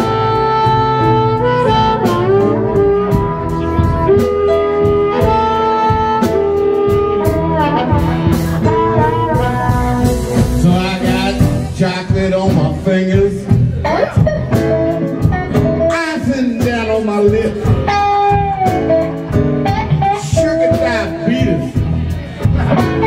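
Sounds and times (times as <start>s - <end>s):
amplified harmonica: 0.0s - 11.4s
bass: 0.0s - 23.0s
steady drum beat: 0.0s - 23.0s.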